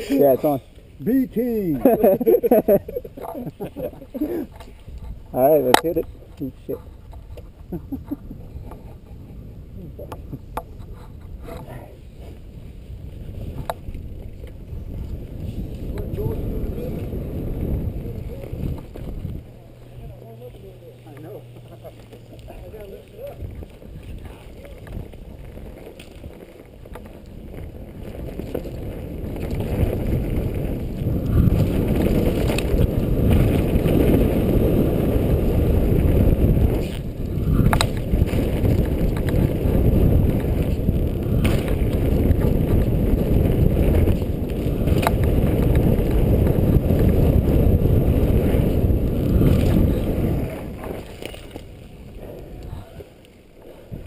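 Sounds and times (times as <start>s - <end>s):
bike tyres rumbling on dirt: 0.0s - 54.0s
wind buffeting camera: 0.0s - 54.0s
bike clacking over bumps: 13.3s - 54.0s.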